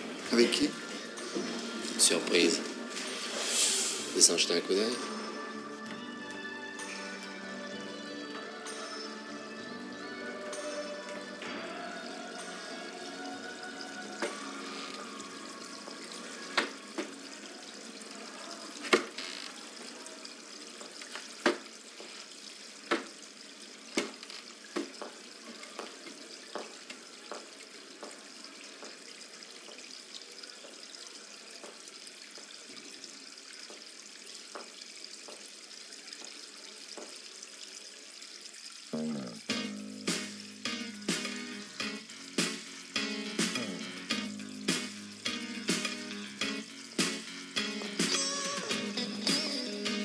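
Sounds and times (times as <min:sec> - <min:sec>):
film music: 0:00.0 - 0:17.4, 0:39.0 - 0:50.0
running water hiss: 0:00.0 - 0:50.0
footsteps on tiled floor: 0:24.0 - 0:29.0.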